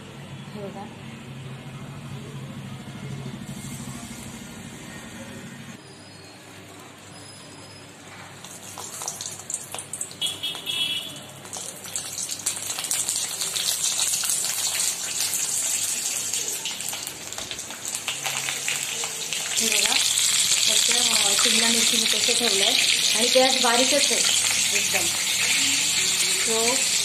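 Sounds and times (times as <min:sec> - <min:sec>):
peppers sizzling in hot oil: 0:08.4 - 0:27.0.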